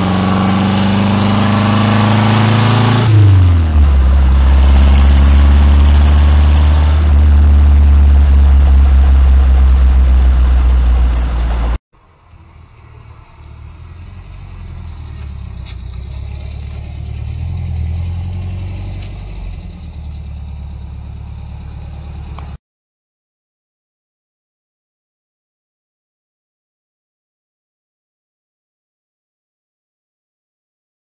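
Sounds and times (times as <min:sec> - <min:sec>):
car engine idling: 0:00.0 - 0:22.6
car engine running: 0:00.0 - 0:22.6
road noise: 0:00.0 - 0:22.6.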